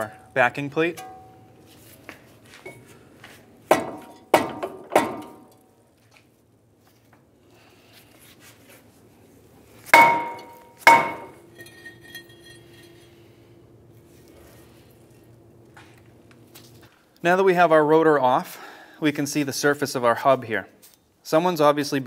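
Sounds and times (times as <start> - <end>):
mallet striking metal rotor: 1.0 - 1.4, 10.0 - 12.6.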